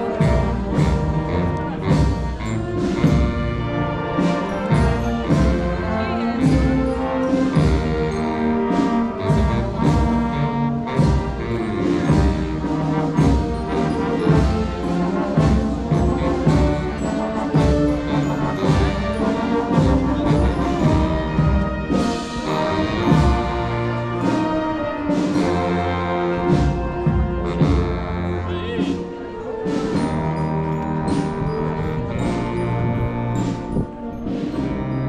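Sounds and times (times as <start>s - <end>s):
brass band playing: 0.0s - 35.0s
drum strokes: 0.0s - 35.0s.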